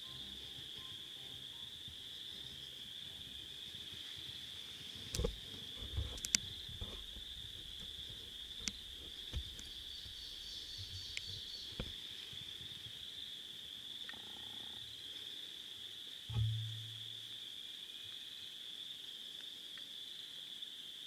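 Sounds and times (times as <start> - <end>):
chorus of calling animals: 0.0 - 16.0.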